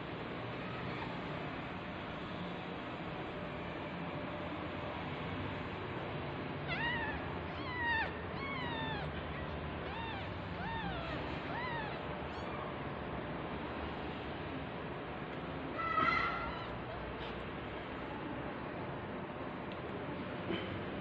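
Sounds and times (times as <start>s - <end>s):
kitten mewing: 6.7s - 12.7s.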